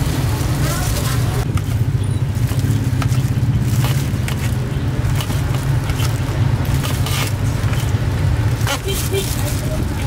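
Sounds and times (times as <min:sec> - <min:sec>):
street traffic engine drone: 0:00.0 - 0:10.0.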